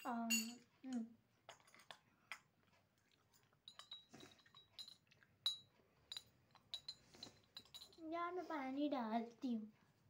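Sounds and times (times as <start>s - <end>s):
small objects clicking and tapping: 0.0s - 8.1s.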